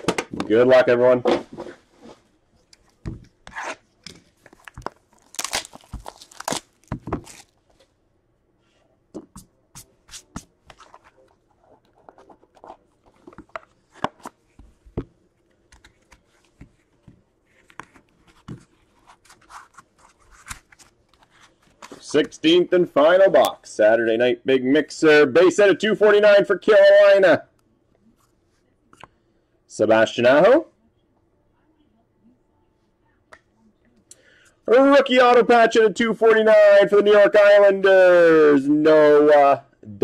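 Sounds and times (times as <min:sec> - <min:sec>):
packaging crinkling: 0:04.4 - 0:07.6
shrink-wrap tearing: 0:04.5 - 0:07.6.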